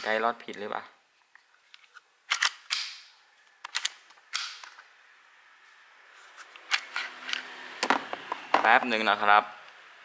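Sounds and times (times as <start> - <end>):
pistol slide clicks and scrapes: 1.7 - 4.8, 6.3 - 7.5.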